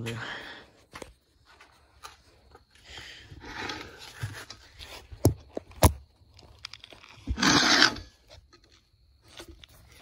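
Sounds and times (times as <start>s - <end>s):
loud scraping rustle: 6.9s - 8.3s.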